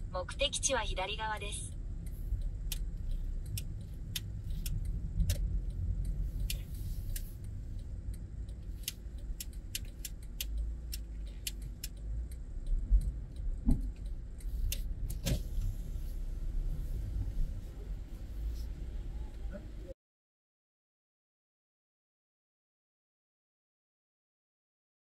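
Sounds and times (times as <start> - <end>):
car interior low rumble: 0.0 - 19.9.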